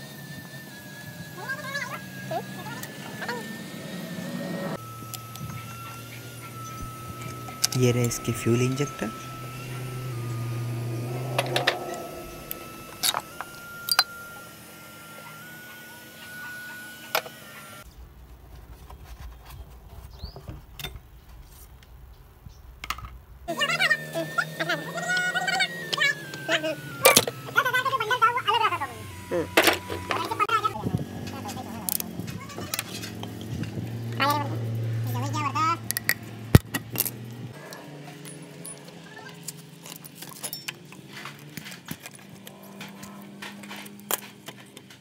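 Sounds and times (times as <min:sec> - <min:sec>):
wavering pitched sound: 0:00.0 - 0:17.8, 0:23.5 - 0:39.4
metallic tool clicks and clinks: 0:39.8 - 0:41.1.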